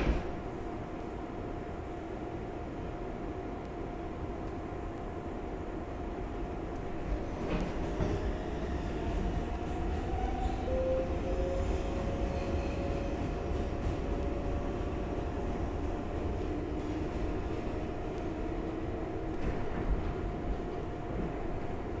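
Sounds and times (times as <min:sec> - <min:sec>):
subway train rumble: 0:00.0 - 0:22.0.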